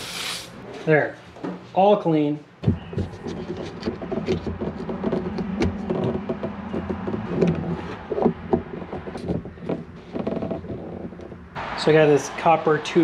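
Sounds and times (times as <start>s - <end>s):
plastic parts clicking and knocking: 2.6s - 11.6s.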